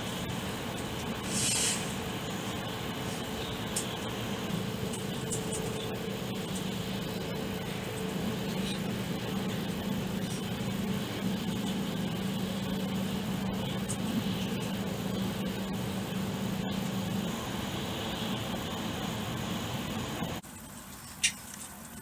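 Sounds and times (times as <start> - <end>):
train cabin hiss and hum: 0.0 - 22.0.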